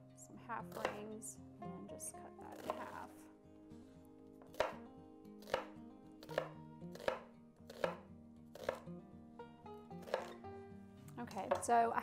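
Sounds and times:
knife chopping on wooden board: 0.7 - 1.0, 4.4 - 4.8, 5.4 - 8.9, 10.0 - 10.4, 11.4 - 11.7.

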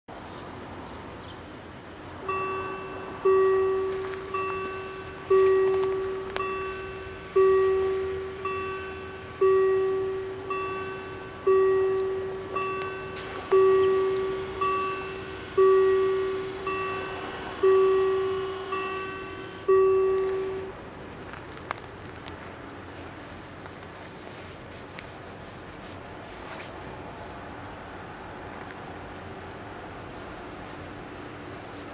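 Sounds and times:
level crossing bells ringing: 2.2 - 20.8.

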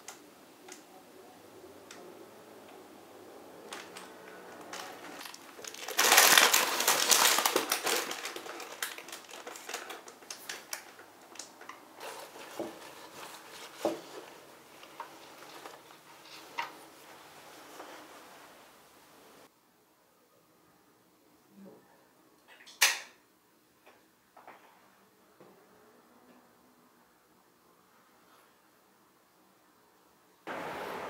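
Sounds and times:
stems and flowers rustling: 0.0 - 19.5.

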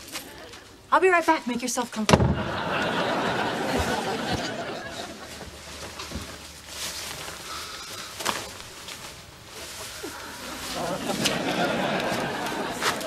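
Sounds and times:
leather jacket rustling: 5.0 - 13.0.

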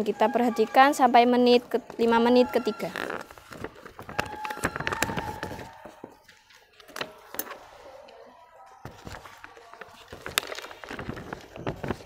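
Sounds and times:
plastic sheets rustling: 2.0 - 8.0, 8.8 - 12.0.

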